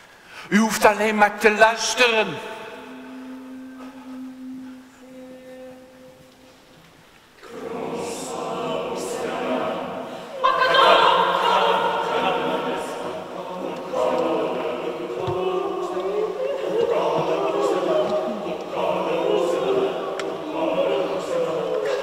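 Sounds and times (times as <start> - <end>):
faint steady note: 1.8 - 10.4
mixed choir singing: 2.7 - 6.6, 7.3 - 22.0.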